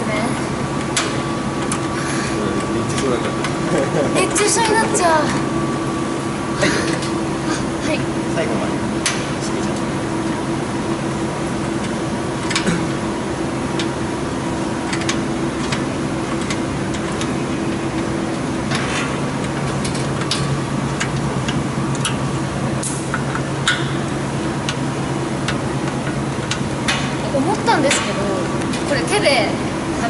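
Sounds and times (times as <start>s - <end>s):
mechanical hum: 0.0s - 30.0s
hand tools tapping metal: 27.8s - 28.9s.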